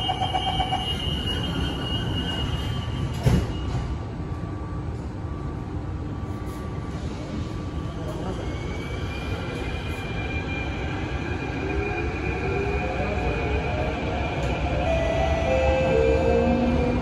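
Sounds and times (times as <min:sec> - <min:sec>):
train low rumble: 0:00.0 - 0:17.0
train doors sliding shut: 0:03.0 - 0:04.0.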